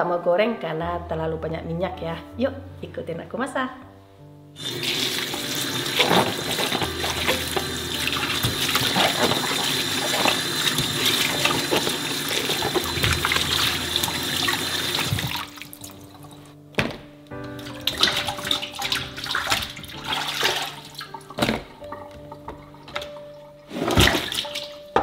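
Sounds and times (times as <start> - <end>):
water splashing: 4.6 - 16.2, 17.6 - 24.8
tap running into bowl: 5.2 - 15.5.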